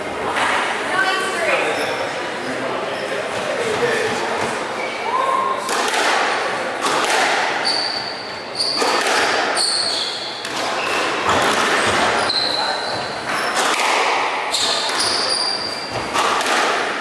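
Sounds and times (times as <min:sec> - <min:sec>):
squash ball smacking: 0:05.6 - 0:07.6, 0:08.7 - 0:09.6, 0:10.4 - 0:12.2, 0:13.2 - 0:15.2, 0:15.9 - 0:17.0
shoes squeaking on wooden floor: 0:07.6 - 0:13.6.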